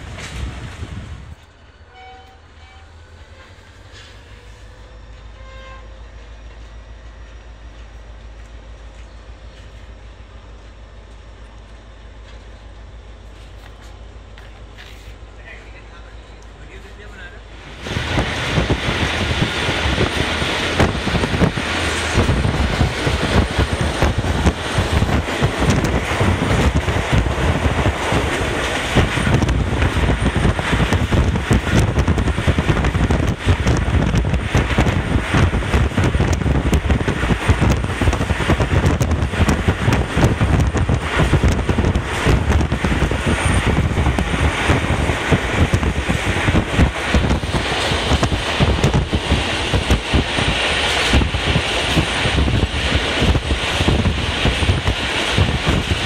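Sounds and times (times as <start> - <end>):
wind buffeting microphone: 0.0 - 1.5, 17.6 - 56.0
train rumbling and clattering: 0.0 - 56.0.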